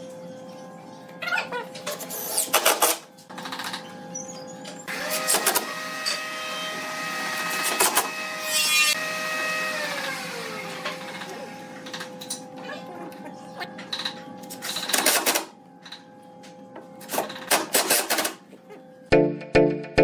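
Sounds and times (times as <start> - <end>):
cordless drill motor whining: 4.9 - 11.7.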